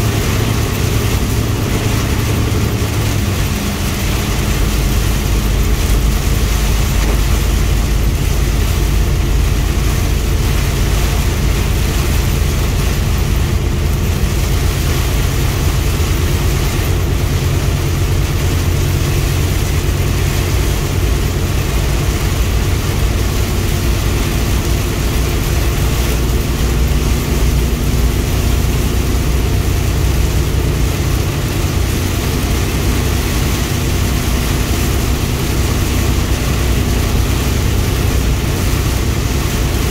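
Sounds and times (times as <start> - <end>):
rain hitting glass and body: 0.0 - 39.9
truck engine and tyre noise: 0.0 - 39.9.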